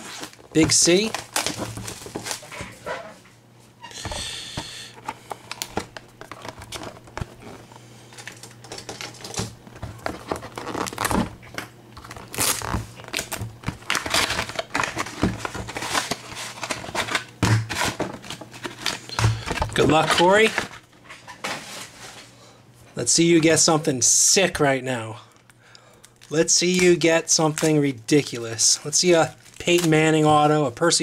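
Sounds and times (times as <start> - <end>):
plastic wrapping crinkling: 0.0 - 2.8, 5.3 - 20.8, 25.4 - 30.5.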